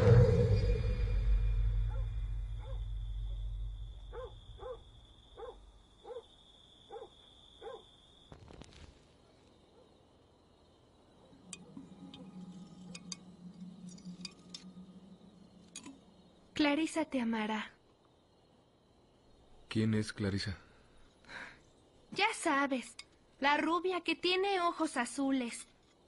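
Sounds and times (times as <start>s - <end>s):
low rumble: 0.0s - 5.8s, 11.4s - 16.5s
faint low hum: 0.0s - 8.4s, 9.1s - 24.0s
insect trill: 0.0s - 26.0s.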